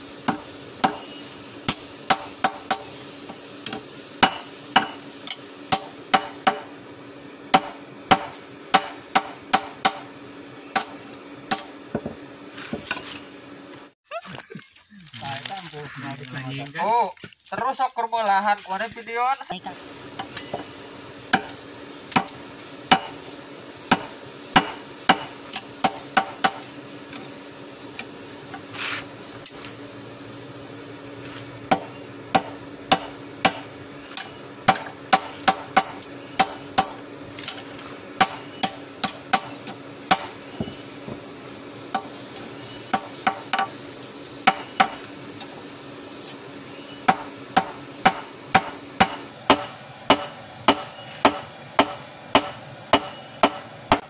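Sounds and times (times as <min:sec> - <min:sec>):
hammer striking metal on anvil: 0:01.7 - 0:02.9, 0:03.7 - 0:06.7, 0:07.5 - 0:10.1, 0:10.7 - 0:12.1, 0:22.1 - 0:23.2, 0:47.1 - 0:54.0.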